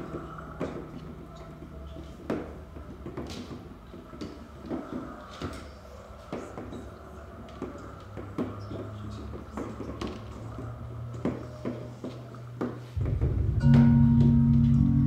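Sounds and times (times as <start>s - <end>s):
low steady drone: 13.0s - 15.0s.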